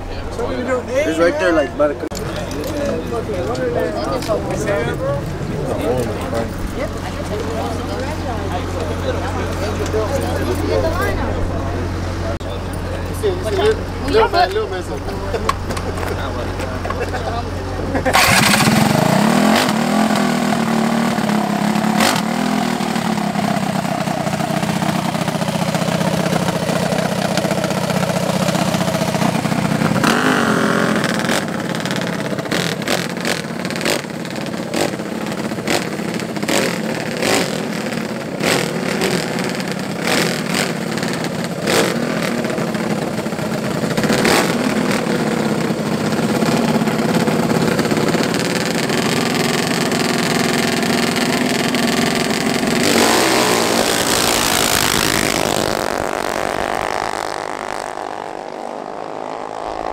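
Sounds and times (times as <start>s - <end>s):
mini bike engines revving: 0.6s - 59.9s.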